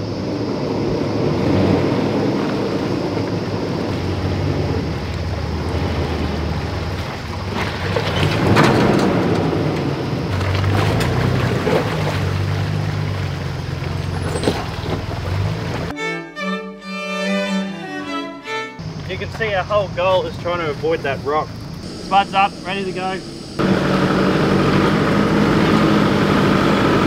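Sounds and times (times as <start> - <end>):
engine running at low revs: 0.0 - 15.9, 18.8 - 27.0
tyres splashing: 1.6 - 15.9
string music: 15.4 - 19.3.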